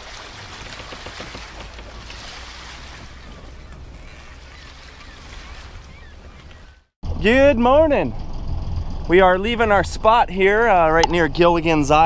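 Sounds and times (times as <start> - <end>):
rushing wind and water: 0.0 - 6.9
low rumble: 6.2 - 12.0.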